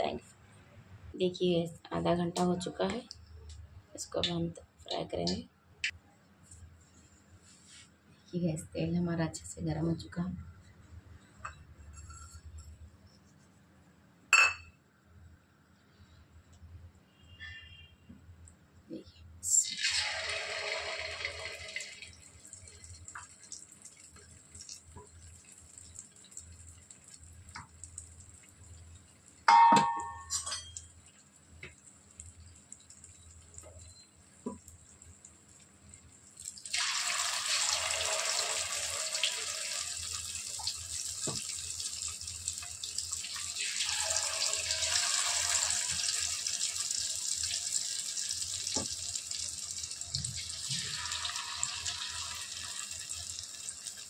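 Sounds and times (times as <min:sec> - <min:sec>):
food deep-frying in hot oil: 0:19.4 - 0:54.0.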